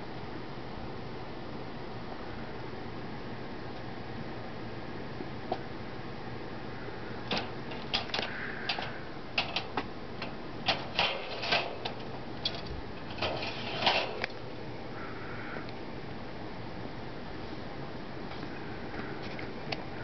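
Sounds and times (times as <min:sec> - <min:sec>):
bird clicking on cage bars: 0:07.3 - 0:13.4.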